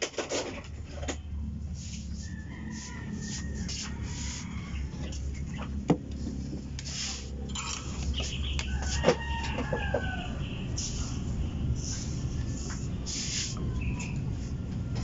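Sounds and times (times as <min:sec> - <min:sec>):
chicken calling: 0:08.6 - 0:10.7.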